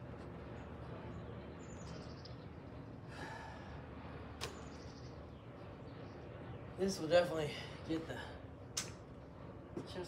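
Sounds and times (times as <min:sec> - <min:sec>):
steady low rumble: 0:00.0 - 0:10.0
breath: 0:03.1 - 0:03.8.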